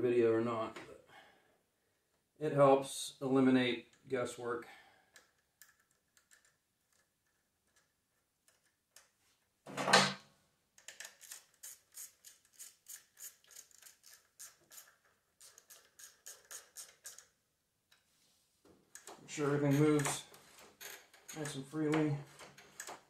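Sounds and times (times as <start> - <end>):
ratchet wrench clicking: 10.9 - 17.3.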